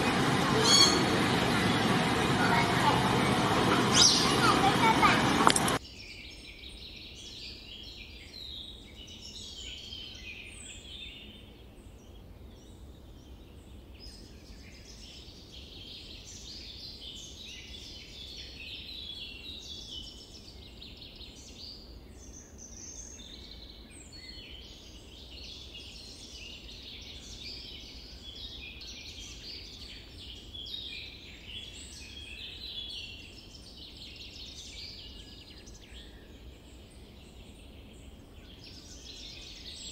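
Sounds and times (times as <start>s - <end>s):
steady low rumble: 0.0s - 5.8s
small birds chirping: 0.0s - 39.9s.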